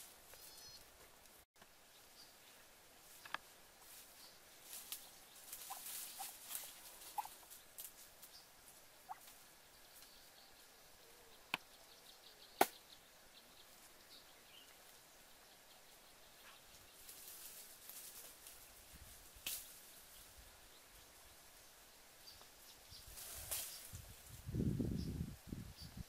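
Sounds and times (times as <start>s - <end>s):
footsteps on dry leaves: 3.8s - 8.1s.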